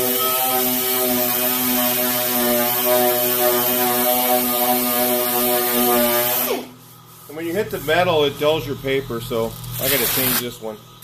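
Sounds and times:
orbital sander motor whine: 0.0 - 6.7
sandpaper hissing on filler: 0.0 - 8.1, 9.8 - 10.6.

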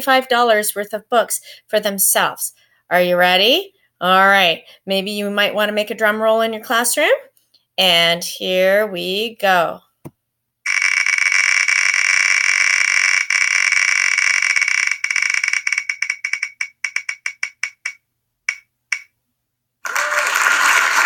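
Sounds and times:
spinning wheel ticking: 10.7 - 19.1.

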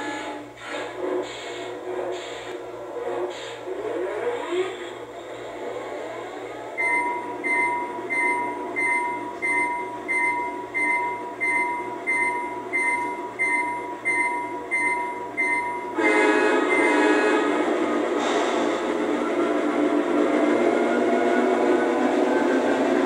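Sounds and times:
multi-note horn blast: 16.0 - 17.9.

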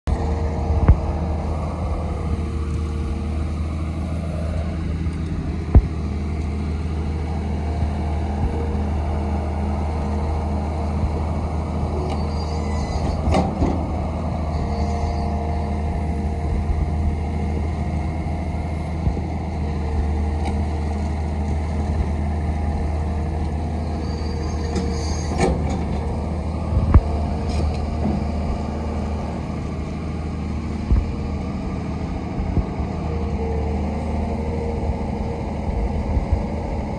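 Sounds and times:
excavator diesel engine: 0.0 - 36.9
hydraulic boom moving: 11.9 - 15.4, 23.4 - 30.1.

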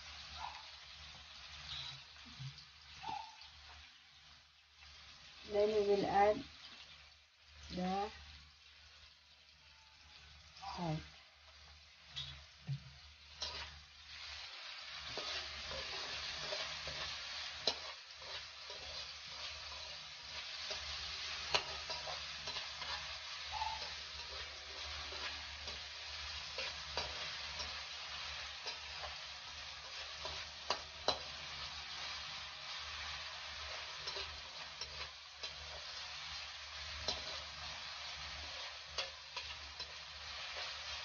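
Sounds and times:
vegetables sizzling in hot oil: 0.0 - 41.0
metal spatula scraping pan: 1.6 - 2.0, 13.3 - 32.0, 33.6 - 36.1, 36.9 - 41.0.

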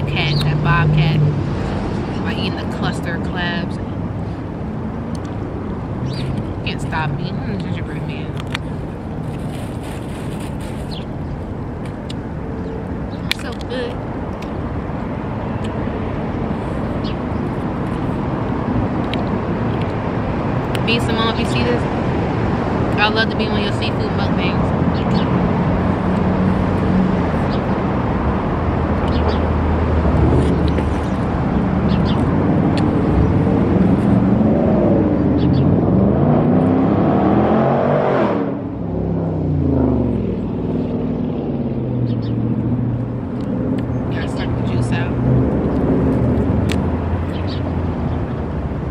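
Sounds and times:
low engine hum: 0.0 - 48.9
road traffic rumble: 0.0 - 48.9
vehicle accelerating past: 24.6 - 48.6.

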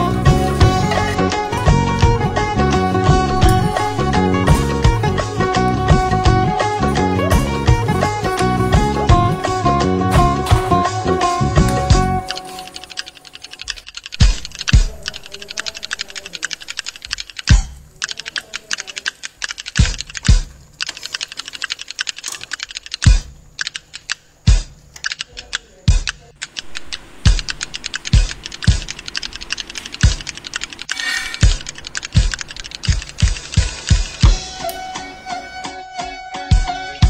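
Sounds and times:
deep drum strokes: 0.3 - 6.6
fast clicking percussion: 11.6 - 34.8.

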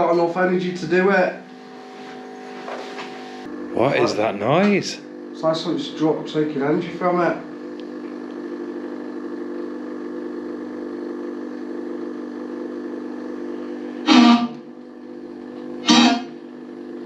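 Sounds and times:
low drone of held tones: 13.8 - 14.7, 15.8 - 16.4.

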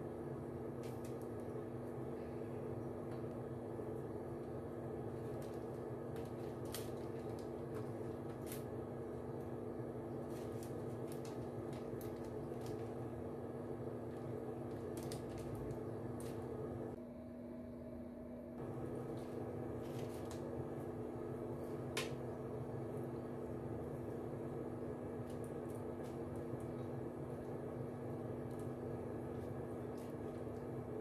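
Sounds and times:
steady mechanical hum: 0.0 - 31.0
brush dabbing on crinkling foil: 4.3 - 17.0, 18.6 - 21.9, 25.0 - 31.0.

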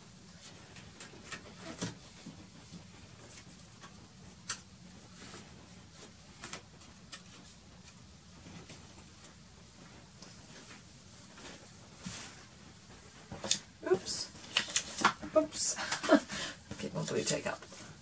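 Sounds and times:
low steady hum: 0.0 - 18.0
hands handling paper: 14.3 - 18.0.

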